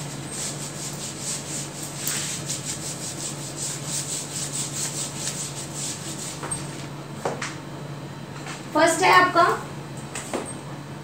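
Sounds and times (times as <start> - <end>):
duster swishing on whiteboard: 0.0 - 6.9.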